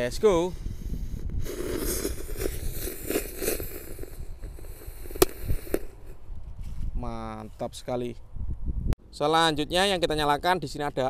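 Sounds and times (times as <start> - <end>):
firecracker hissing: 0.6 - 6.2
firecracker pops: 1.4 - 6.2.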